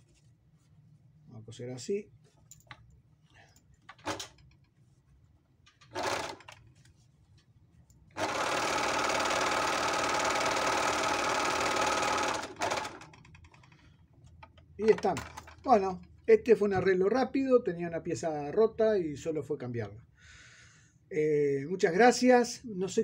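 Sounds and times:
overlock sewing machine running: 5.9 - 6.6, 8.2 - 13.2.

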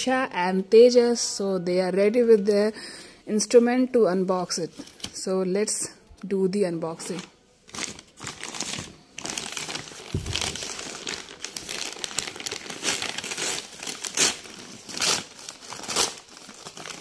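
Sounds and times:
paper bag crinkling: 7.7 - 17.0.

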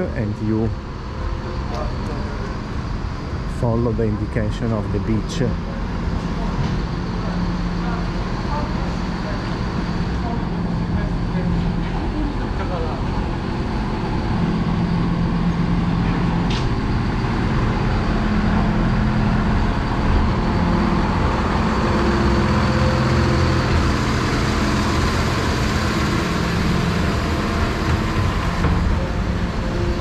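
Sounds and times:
diesel engine idling: 0.0 - 30.0.

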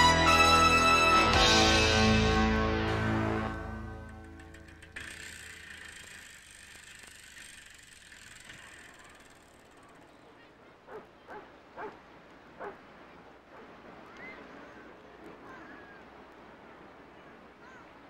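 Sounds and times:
bicycle chain ticking: 3.9 - 10.1.

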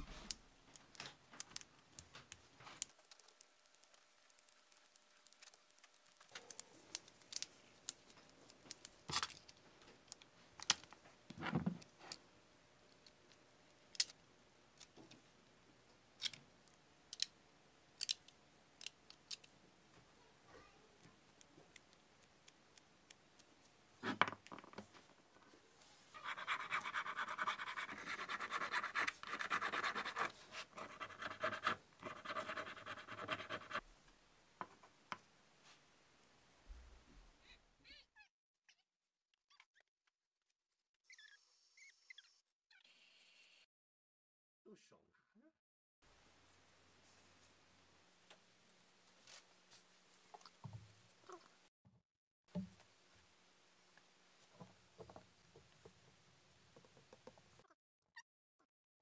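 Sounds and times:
clicks of metal parts handled: 18.0 - 19.5.

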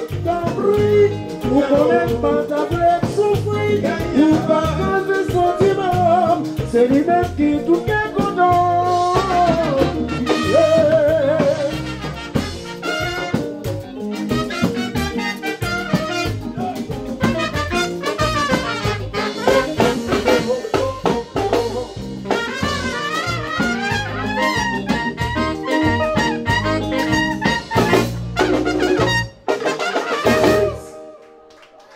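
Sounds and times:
man singing: 0.0 - 12.2, 15.7 - 25.2, 30.2 - 31.0
drums: 0.0 - 31.1
live band playing dance music: 0.0 - 31.5
horn section playing: 8.9 - 31.4.

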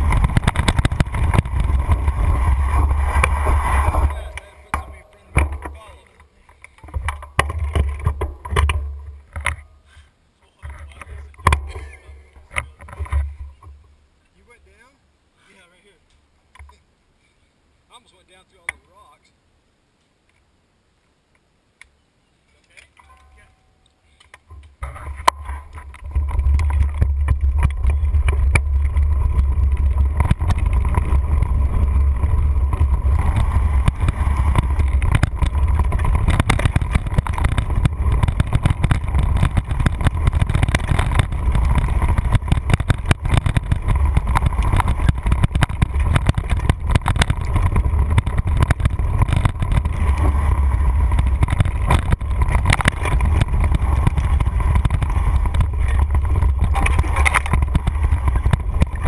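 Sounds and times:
wind buffeting microphone: 0.0 - 6.0, 24.8 - 59.0
bike rattling over bumps: 0.0 - 13.9, 24.4 - 59.0.

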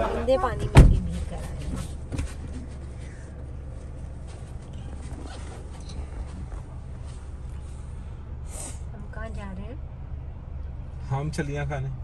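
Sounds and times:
car cabin rumble: 0.0 - 8.4
short hiss: 8.4 - 8.9.

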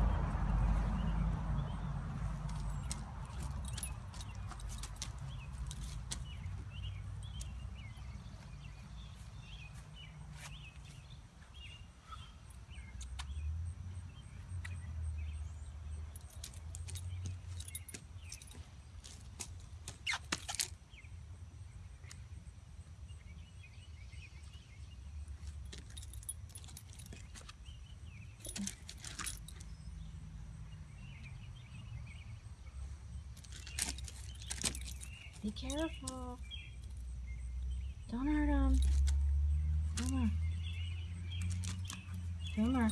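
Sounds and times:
paws on gravel: 2.3 - 11.6, 28.4 - 29.7, 33.4 - 36.9, 41.3 - 42.9
dog tags jingling: 2.4 - 8.2, 16.0 - 20.7, 25.4 - 30.0, 33.3 - 37.1, 38.5 - 42.9
small bird chirping: 2.5 - 42.9
dog moving on gravel: 33.4 - 36.2, 41.3 - 42.9.

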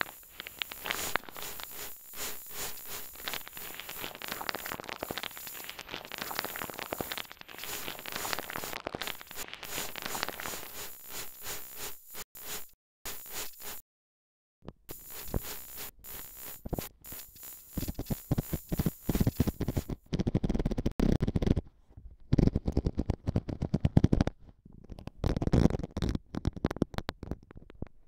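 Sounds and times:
dense crackling static: 0.0 - 13.8, 14.7 - 21.6.

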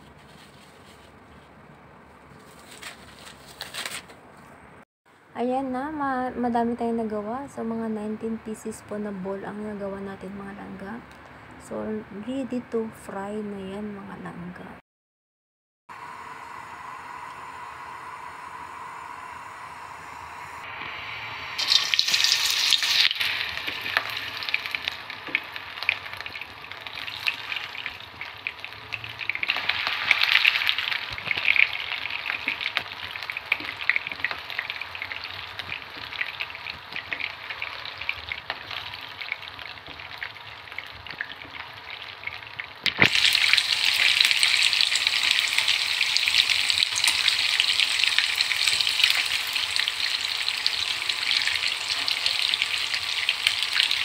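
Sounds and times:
meatballs sizzling in oil: 20.6 - 54.0.

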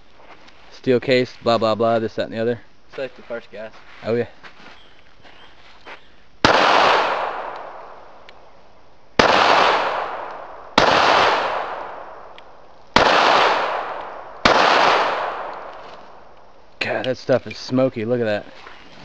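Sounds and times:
pistol shots echoing: 6.4 - 8.1, 9.2 - 16.4.

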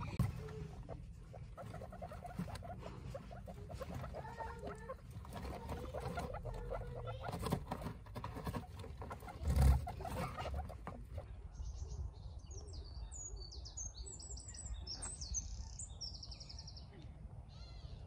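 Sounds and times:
guinea pigs squeaking: 0.0 - 11.3
rustling in wood shavings: 0.0 - 11.3.

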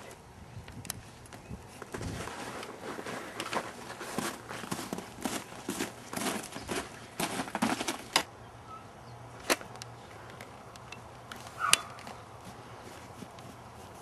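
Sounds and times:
footsteps crunching in snow: 1.7 - 8.2, 11.4 - 14.0.

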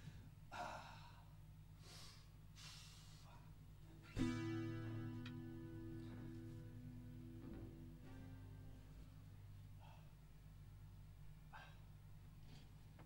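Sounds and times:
faint breathy noises: 0.0 - 3.7, 9.6 - 10.4, 11.4 - 12.9
acoustic guitar chord ringing: 4.0 - 9.8.

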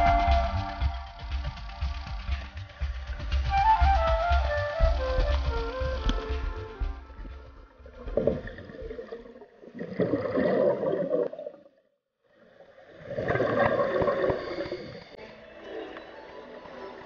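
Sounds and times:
exhaled air bubbling underwater: 7.8 - 11.8, 12.4 - 15.2.

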